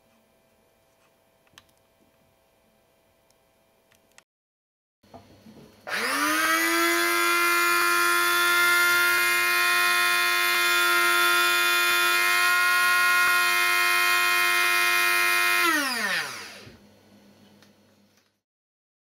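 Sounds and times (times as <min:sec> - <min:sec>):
coffee grinder motor whining: 0:05.9 - 0:16.8.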